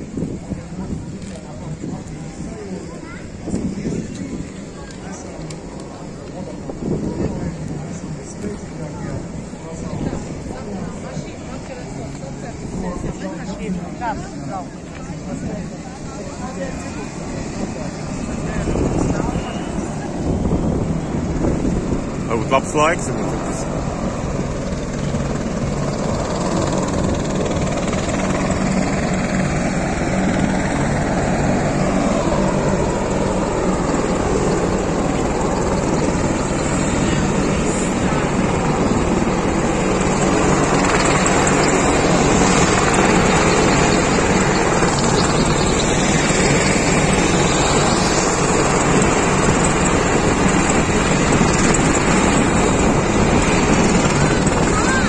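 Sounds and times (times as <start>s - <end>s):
aircraft flying past: 15.4s - 55.0s.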